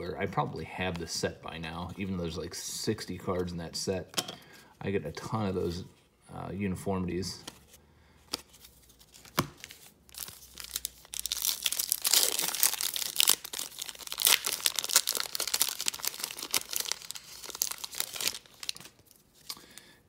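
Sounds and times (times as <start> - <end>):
foil wrapper crackling: 10.1 - 19.8.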